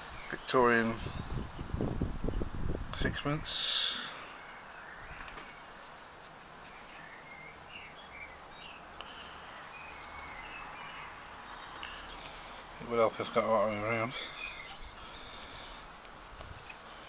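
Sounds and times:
outdoor background hiss: 0.0 - 17.0
faint bird chirps: 6.6 - 15.8.

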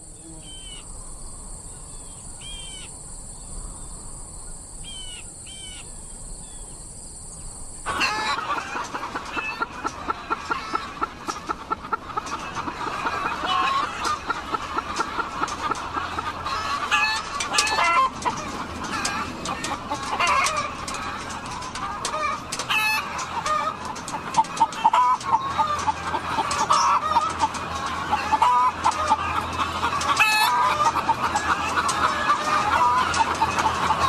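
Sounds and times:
hens clucking: 7.9 - 34.0
hens squawking: 7.9 - 34.0.

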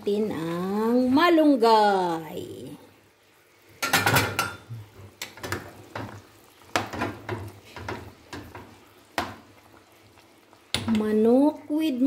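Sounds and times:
cookware clinking and knocking: 3.8 - 4.7.

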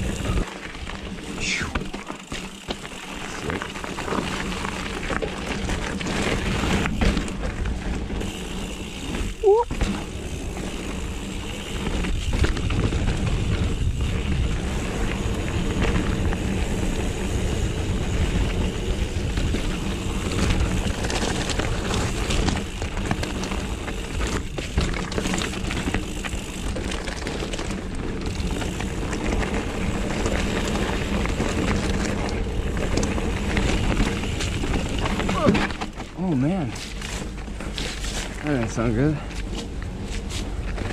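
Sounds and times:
tyres rolling on dirt: 0.0 - 40.9
bike knocking over bumps: 1.8 - 9.0, 18.7 - 38.4.

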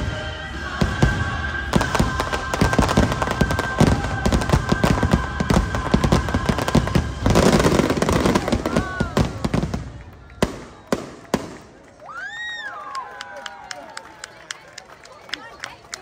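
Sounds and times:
fireworks bursts and crackles: 0.0 - 12.0.

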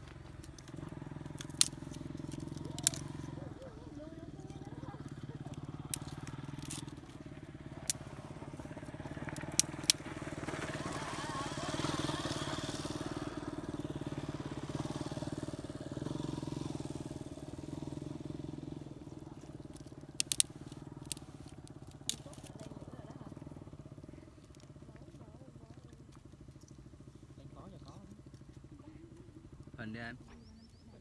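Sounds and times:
kindling fire snapping: 0.0 - 3.8, 4.5 - 10.8, 19.1 - 27.0
motorcycle engine running: 0.0 - 31.0.

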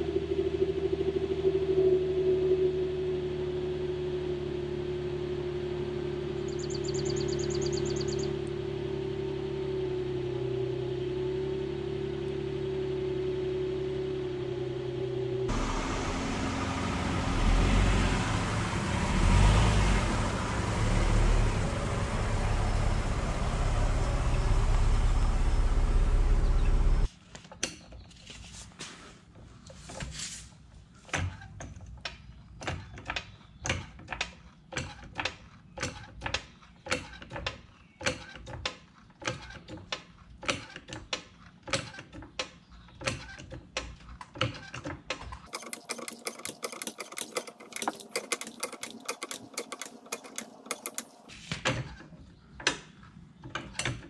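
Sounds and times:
car engine idling: 0.0 - 27.1
floor jack clicking: 45.4 - 51.3.

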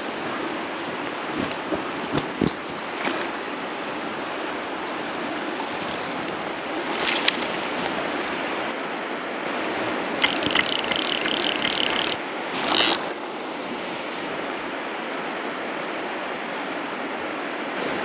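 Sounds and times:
river water rushing: 0.0 - 18.0
fishing reel drag buzzing: 10.2 - 13.0.

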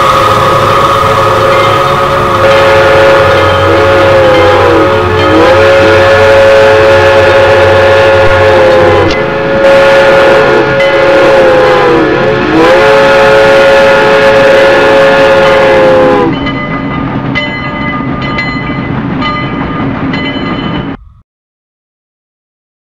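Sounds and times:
train horn chord: 0.0 - 16.5
train running noise: 0.0 - 21.2.

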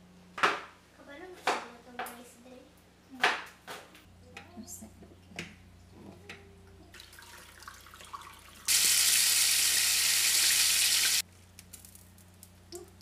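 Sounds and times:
food sizzling in a frying pan: 8.7 - 11.3.

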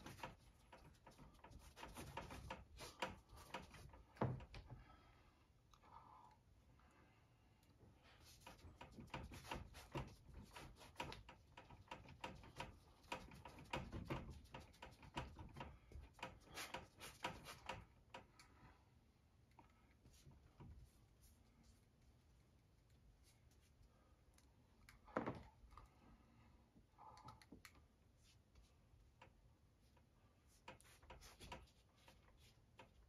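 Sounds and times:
paint dabbing and scrubbing on canvas: 0.0 - 4.2, 8.0 - 18.0, 29.8 - 33.0.

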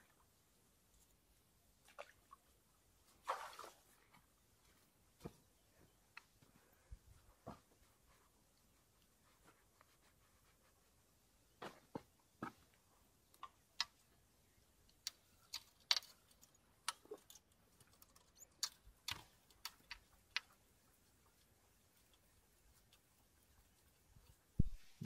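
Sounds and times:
fishing tackle clicks and taps: 14.9 - 20.5.

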